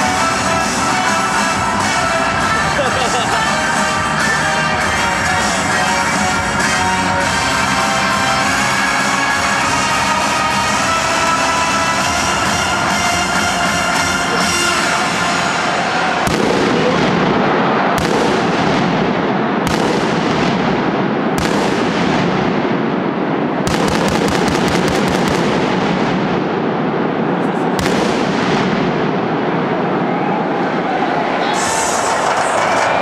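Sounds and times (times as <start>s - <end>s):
music playing: 0.0s - 17.1s
loud echoing roar: 0.0s - 33.0s
pyrotechnic blasts: 0.0s - 33.0s.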